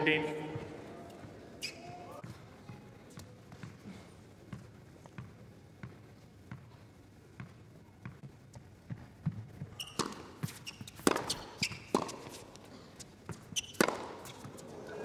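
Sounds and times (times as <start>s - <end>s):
shoes squeaking on court: 0.6s - 3.8s, 9.6s - 15.0s
tennis ball bounces: 9.2s - 12.4s, 13.2s - 14.7s
tennis racket strikes: 9.9s - 12.4s, 13.3s - 14.4s.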